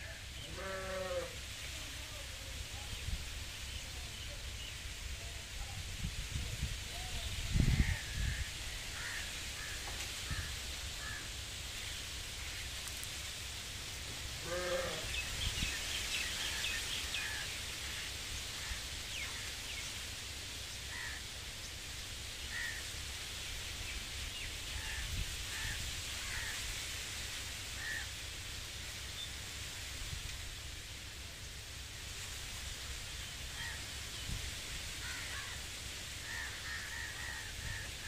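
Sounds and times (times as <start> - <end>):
wind rustling tree leaves: 0.0 - 38.0
wind buffeting microphone: 5.6 - 9.0.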